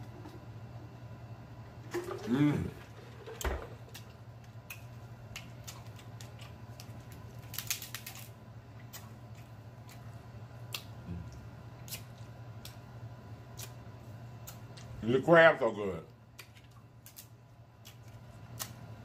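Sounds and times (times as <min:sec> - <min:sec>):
steady low hum: 0:00.0 - 0:19.0
crab shells cracking: 0:03.9 - 0:10.0, 0:16.3 - 0:18.8.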